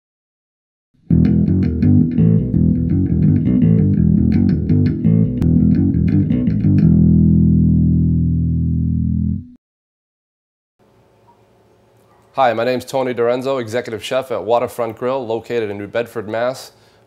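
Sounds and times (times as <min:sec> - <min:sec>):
heavy bass line: 0:01.0 - 0:09.6
intro music with plucked notes: 0:01.0 - 0:09.6.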